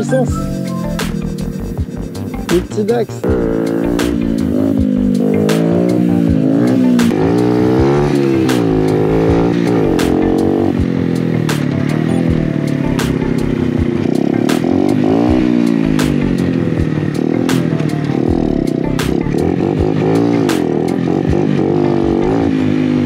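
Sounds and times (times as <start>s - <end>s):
motorcycle engine revving: 0.0s - 23.0s.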